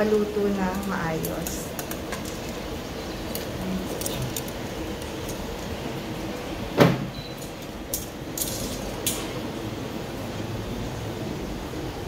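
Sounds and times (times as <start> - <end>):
metal tongs clicking on basket: 0.7 - 2.1
air fryer drawer clunk: 6.7 - 7.4.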